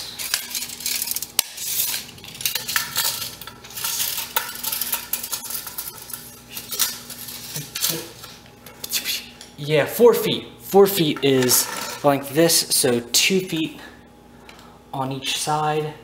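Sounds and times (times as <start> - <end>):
tape measure rattling and scraping: 0.0 - 9.0.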